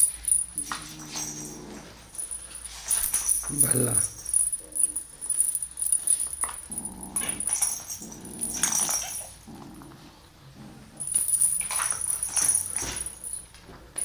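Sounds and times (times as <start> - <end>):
kitten growling: 6.6 - 11.2.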